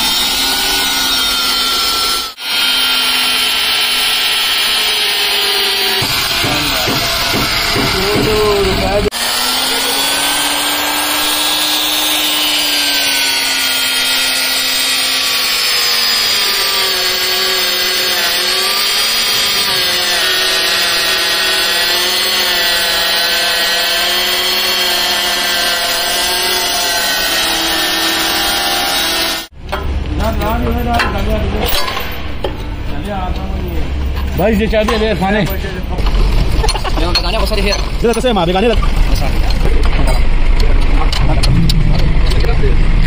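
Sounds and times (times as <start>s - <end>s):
electric drill boring through steel: 0.0s - 29.5s.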